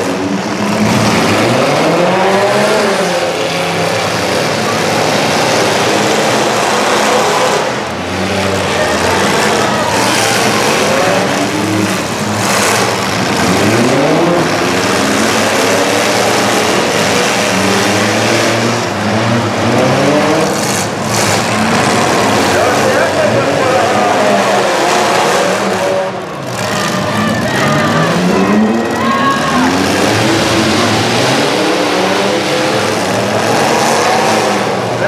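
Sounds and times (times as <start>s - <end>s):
car engines revving hard: 0.0s - 35.0s
dense noisy background: 0.0s - 35.0s.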